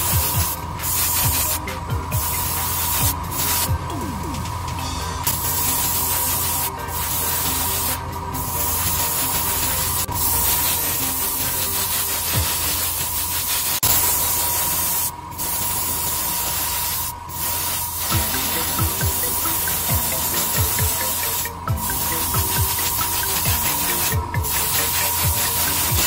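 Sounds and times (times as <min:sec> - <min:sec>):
airbrush hissing air: 0:00.0 - 0:26.0
spray booth fan: 0:00.0 - 0:26.0
thin steady whine: 0:00.0 - 0:26.0
low hum: 0:00.1 - 0:11.7.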